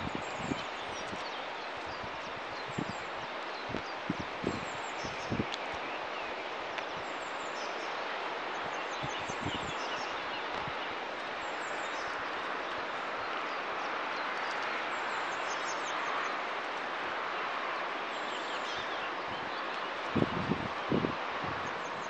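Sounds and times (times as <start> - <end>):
songbirds chirping: 0.0 - 22.0
steady outdoor hiss: 0.0 - 22.0.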